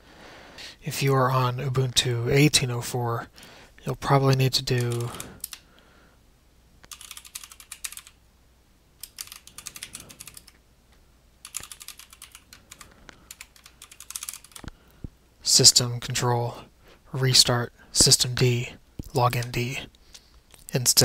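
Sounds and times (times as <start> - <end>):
typing on computer keyboard: 4.8 - 5.6, 6.9 - 8.2, 9.0 - 10.6, 11.4 - 14.7.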